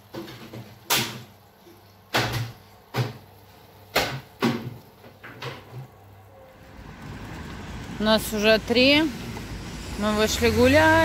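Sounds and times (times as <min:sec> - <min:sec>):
sharp knocks and clatters: 0:02.1 - 0:03.3, 0:03.9 - 0:05.9.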